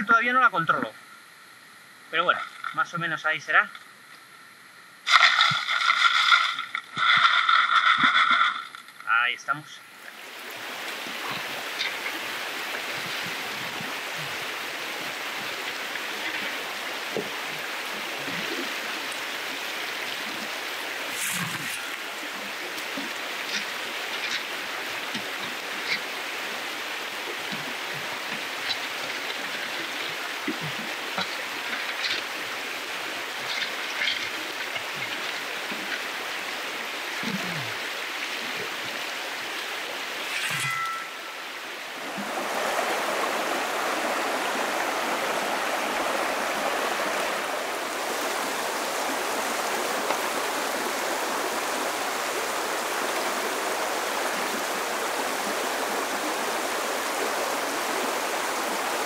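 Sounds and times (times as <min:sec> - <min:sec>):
river water over gravel: 0:05.0 - 0:59.0
small gurgles and splashes: 0:05.1 - 0:08.8, 0:10.0 - 0:52.0.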